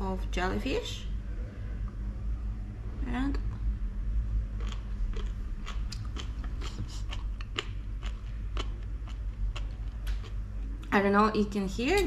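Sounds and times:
person chewing crunchy food: 4.5 - 10.9.

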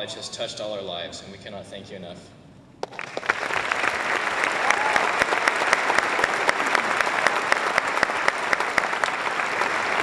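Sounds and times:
audience applauding: 2.8 - 10.0.

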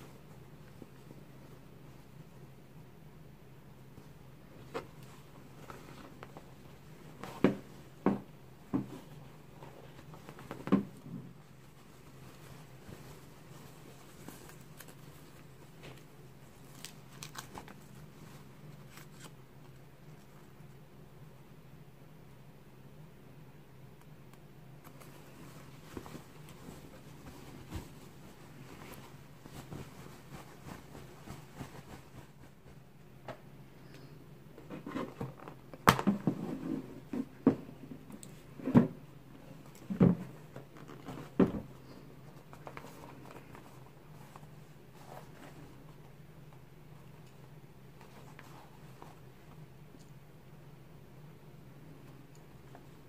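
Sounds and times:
faint steady hum: 0.0 - 53.0
fabric rustling: 3.8 - 20.7, 24.8 - 33.2, 39.4 - 47.2, 47.8 - 49.8.

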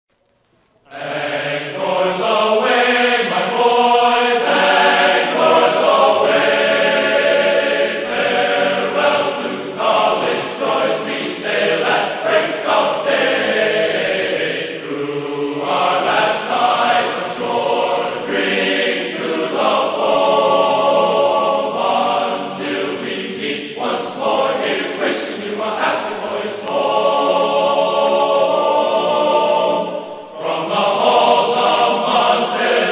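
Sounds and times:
choral singing: 0.8 - 32.9.

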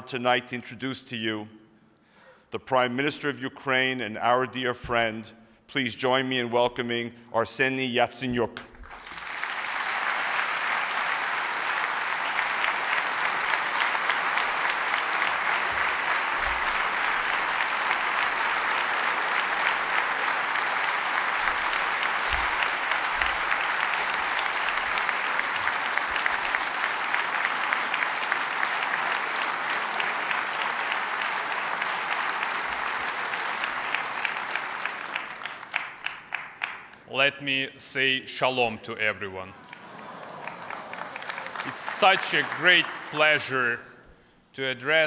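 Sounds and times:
audience applauding: 8.8 - 37.0, 39.6 - 43.9.

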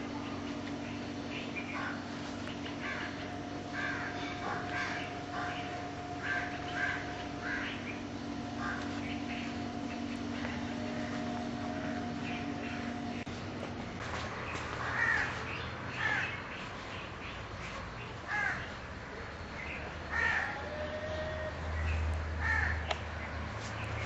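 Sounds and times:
low steady hum: 0.0 - 24.0
crows cawing: 1.7 - 2.1, 2.7 - 13.1, 14.8 - 16.4, 18.3 - 18.7, 20.1 - 21.5, 22.4 - 22.9.

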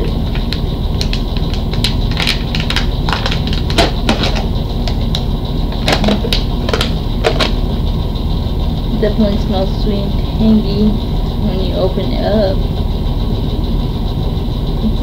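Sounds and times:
steady low hum: 0.0 - 15.0
foil seal crackling and tearing: 0.3 - 5.2.

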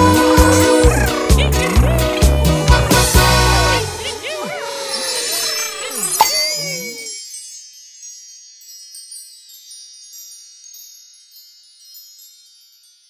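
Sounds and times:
high tinkling chimes: 4.5 - 13.0.

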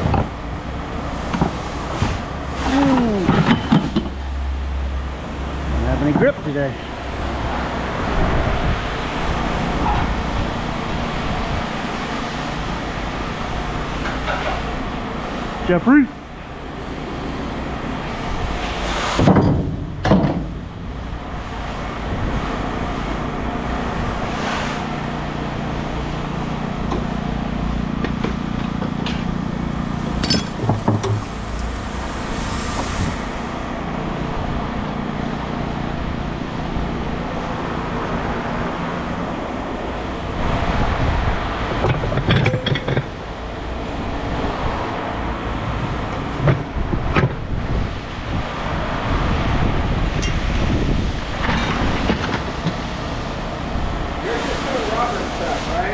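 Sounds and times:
engine running: 0.0 - 55.9
scrap metal clanking: 30.1 - 31.3.

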